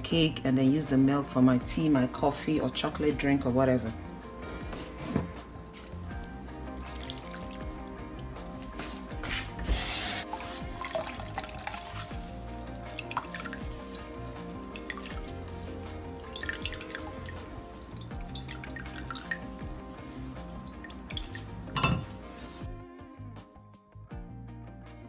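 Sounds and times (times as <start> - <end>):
background music: 0.0 - 25.0
liquid dripping and trickling: 5.8 - 9.1, 10.2 - 22.3.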